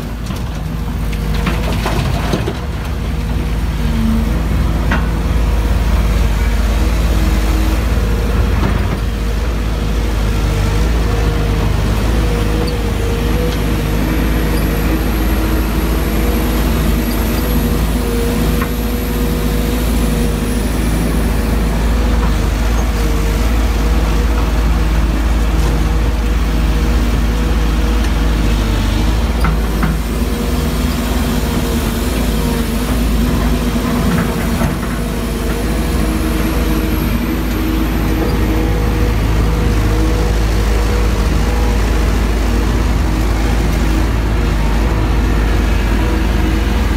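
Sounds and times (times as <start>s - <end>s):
excavator diesel engine running: 0.0s - 46.9s.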